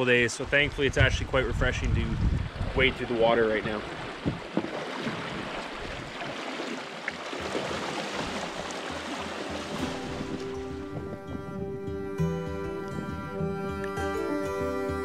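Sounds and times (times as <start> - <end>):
river rapid rushing: 3.6 - 15.0
music: 8.2 - 15.0.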